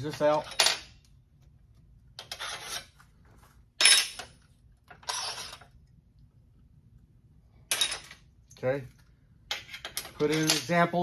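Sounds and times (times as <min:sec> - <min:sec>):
metal hardware clattering: 0:09.5 - 0:11.0.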